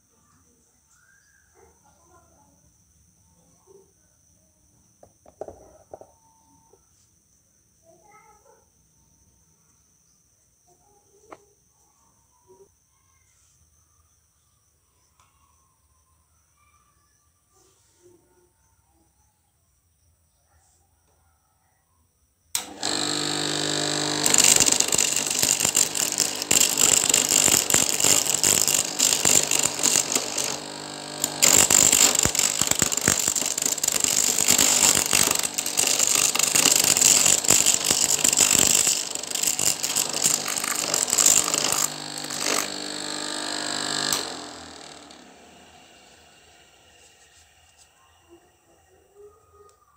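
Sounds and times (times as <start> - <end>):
corn kernels rattling and clattering: 22.6 - 45.2
electric motor humming: 22.6 - 46.6.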